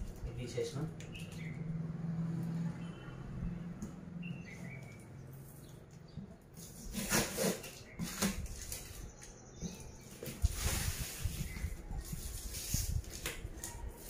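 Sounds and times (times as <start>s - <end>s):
plastic wrap crinkling: 6.6s - 9.3s.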